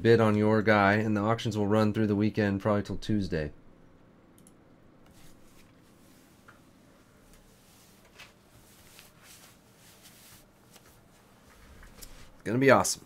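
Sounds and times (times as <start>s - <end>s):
faint irregular clicks: 3.8s - 5.8s
small handling noises: 5.0s - 12.6s.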